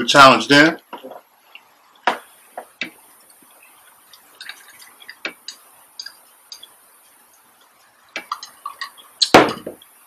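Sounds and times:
wet eating clicks: 4.1s - 6.8s, 8.1s - 9.4s.

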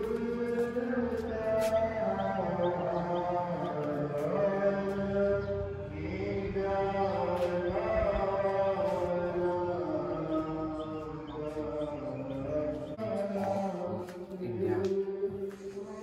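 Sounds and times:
voices chanting a mantra: 0.0s - 16.0s.

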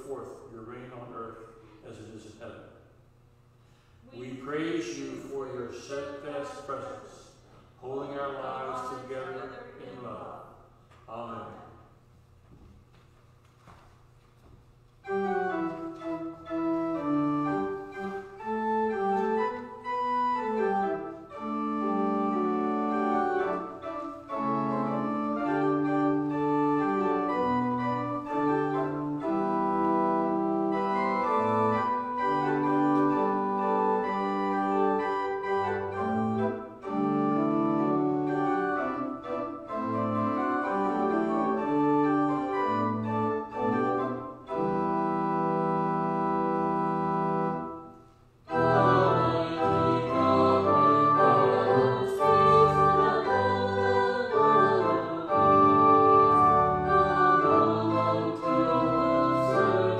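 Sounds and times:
church organ playing chords: 15.0s - 59.9s.

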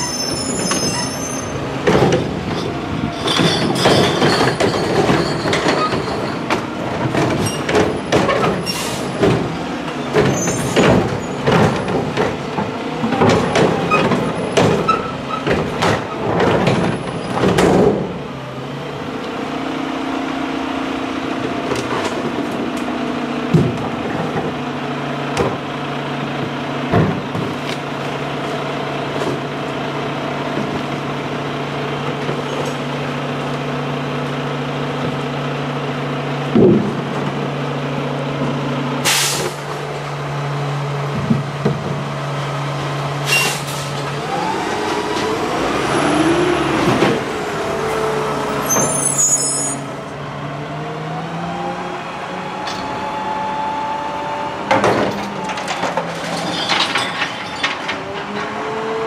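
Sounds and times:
truck engine idling and revving: 0.0s - 59.0s
air brake hisses: 39.1s - 39.6s, 43.3s - 44.0s.

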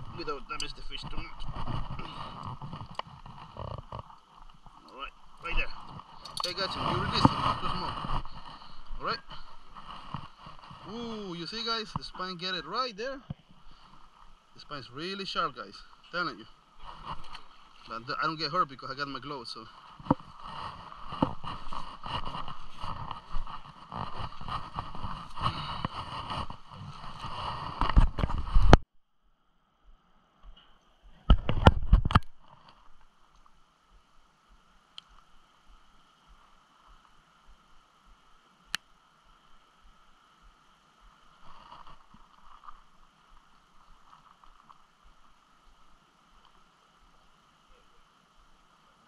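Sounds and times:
fishing gear knocking and rustling: 0.0s - 12.2s, 16.8s - 18.0s, 19.8s - 28.8s, 41.4s - 45.1s.

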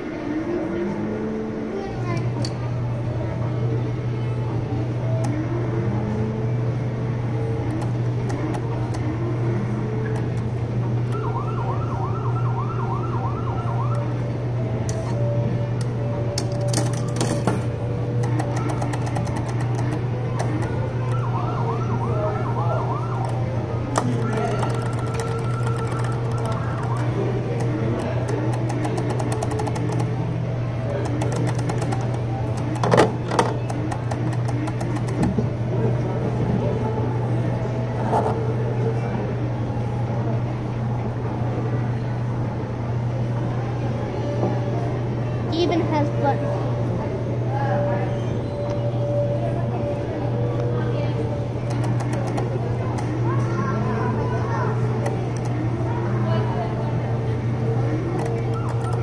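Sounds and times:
ride motor hum: 0.0s - 59.0s
electronic siren wail: 11.1s - 15.7s, 20.1s - 27.6s.

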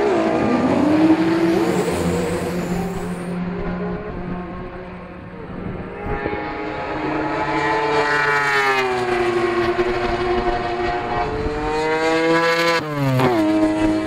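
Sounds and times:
rotary engine revving: 0.0s - 4.7s.

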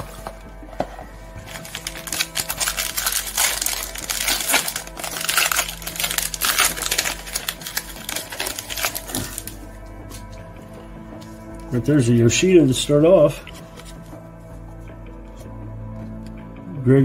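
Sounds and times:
plastic wrapper crinkling and tearing: 1.4s - 10.4s.

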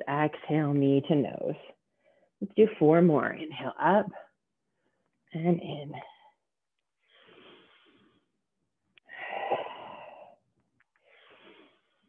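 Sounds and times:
woman breathing: 1.9s - 2.4s, 6.0s - 12.0s.

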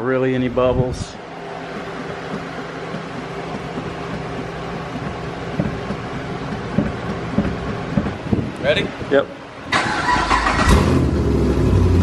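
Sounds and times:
mechanical hum: 0.0s - 12.0s
dull low knocks: 1.6s - 9.1s.

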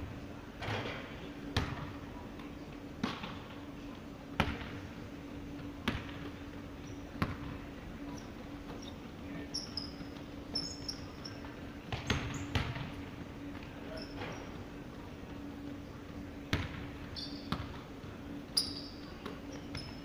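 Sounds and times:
basketball bouncing on wooden floor: 17.5s - 17.8s.

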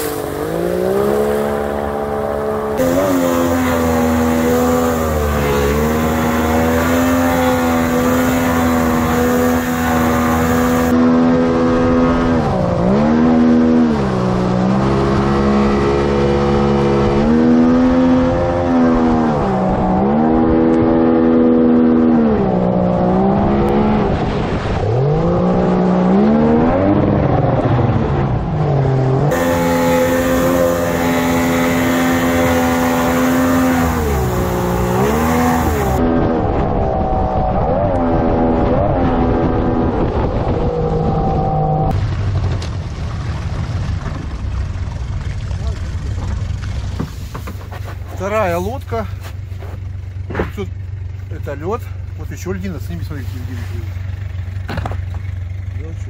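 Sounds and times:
outboard motor running hard: 0.0s - 27.2s, 29.3s - 36.2s, 44.4s - 56.0s
rush of wake water: 0.0s - 28.1s, 29.2s - 37.3s.

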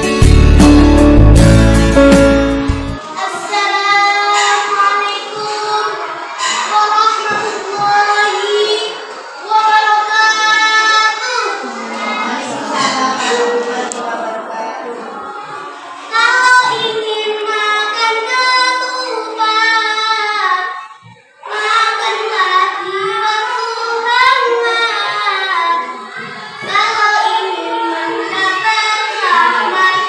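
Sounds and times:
girl singing a chant: 3.2s - 13.7s, 16.0s - 26.0s, 26.6s - 30.0s.

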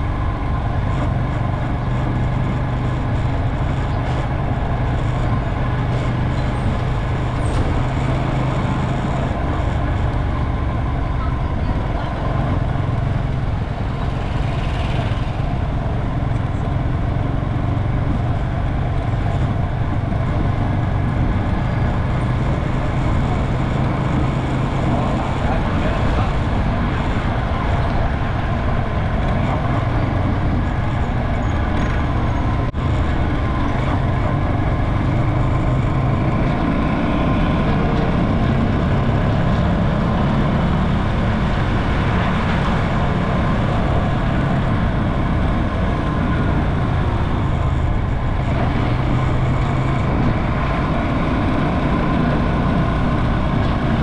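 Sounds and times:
motorcycle engine running: 0.0s - 54.0s
wind and road noise: 0.0s - 54.0s.

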